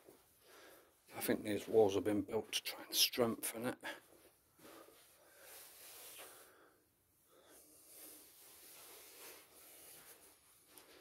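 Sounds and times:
faint breathing: 0.4 - 1.1, 3.8 - 11.0.

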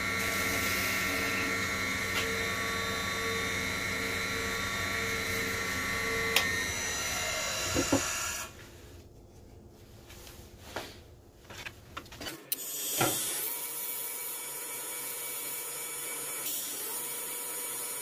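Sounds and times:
wood lathe running: 0.0 - 8.5.

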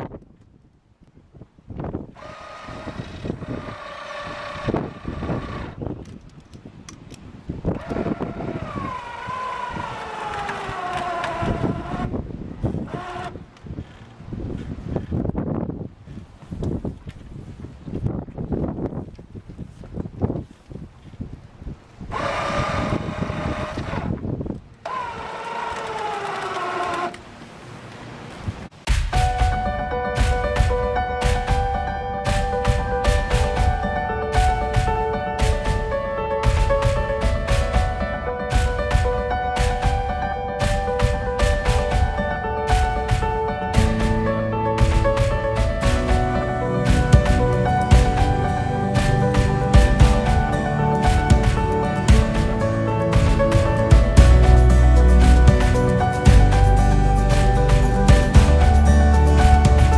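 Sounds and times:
wind buffeting microphone: 0.0 - 24.9
motor whining: 2.1 - 5.9, 7.8 - 12.2, 22.1 - 24.2, 24.8 - 27.3.

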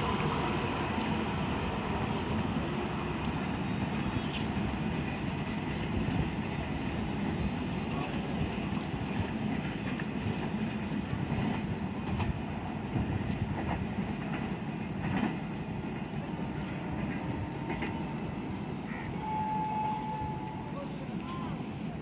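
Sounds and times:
train rumbling on track: 0.0 - 22.0
wheels clacking over rail joints: 4.1 - 18.4.

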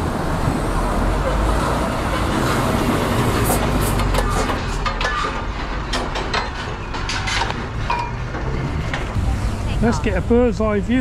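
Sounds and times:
rattles and clicks: 3.4 - 9.2.

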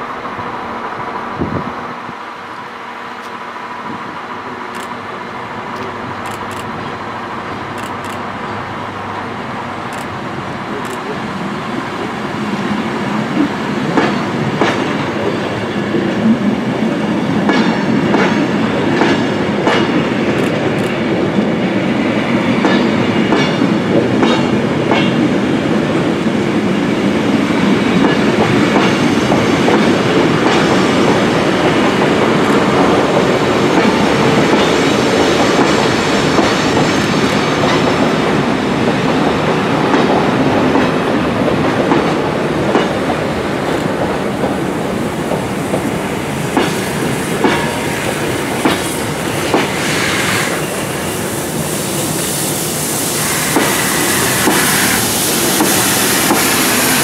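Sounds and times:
train wheels rumbling on rail: 0.0 - 57.0
wheels clacking over rail joints: 53.5 - 57.0.

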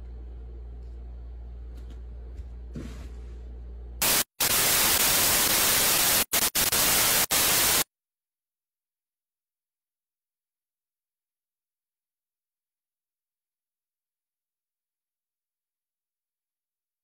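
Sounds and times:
faint low hum: 0.0 - 4.0
loud static hiss: 4.0 - 7.9.

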